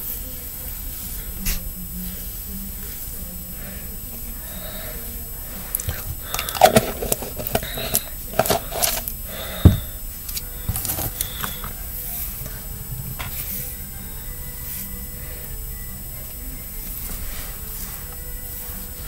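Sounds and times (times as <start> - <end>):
clicks and crinkles of packet: 5.7 - 9.2, 10.3 - 11.8.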